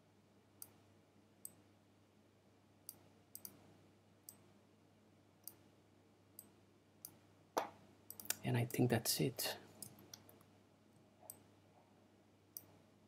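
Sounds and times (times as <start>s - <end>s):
faint low hum: 0.0s - 13.0s
computer mouse clicks: 2.9s - 3.6s, 6.4s - 8.8s, 12.5s - 12.8s.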